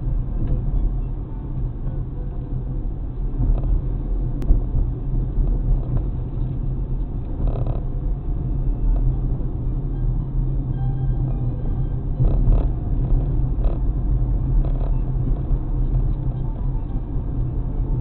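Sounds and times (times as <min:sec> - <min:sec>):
car road and engine rumble: 0:00.0 - 0:18.0.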